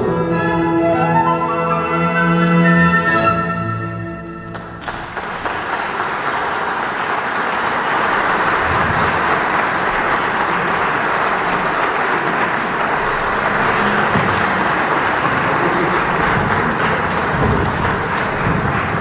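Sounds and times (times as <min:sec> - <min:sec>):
flute and orchestra chord: 0:00.0 - 0:04.4
audience applause: 0:04.5 - 0:19.0.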